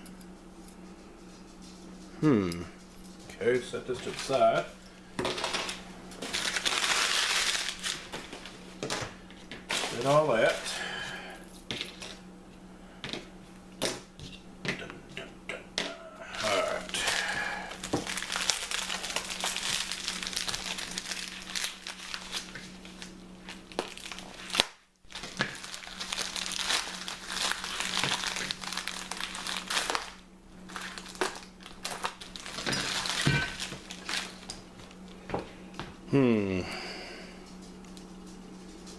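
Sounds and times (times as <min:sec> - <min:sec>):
packing wrap crinkling: 0:03.6 - 0:11.0, 0:16.3 - 0:35.2.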